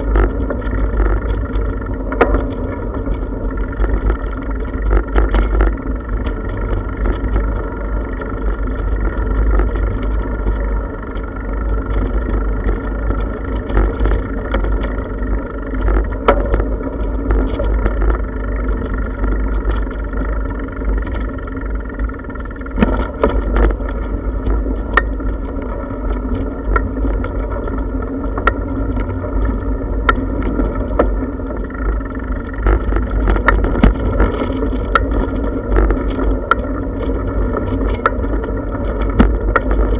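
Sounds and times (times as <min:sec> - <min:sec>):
bicycle tyres rumbling on bricks: 0:00.0 - 0:39.9.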